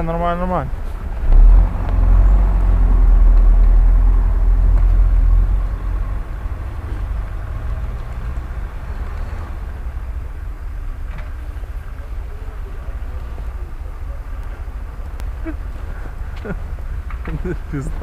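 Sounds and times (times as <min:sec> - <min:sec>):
pickup engine pulling through snow: 0:00.7 - 0:18.0.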